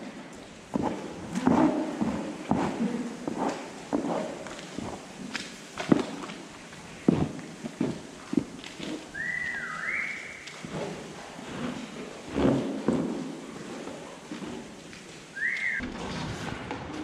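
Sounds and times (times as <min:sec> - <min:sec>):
footsteps on wet floor: 0:00.1 - 0:15.8
person whistling two notes: 0:09.2 - 0:10.4, 0:15.4 - 0:15.8.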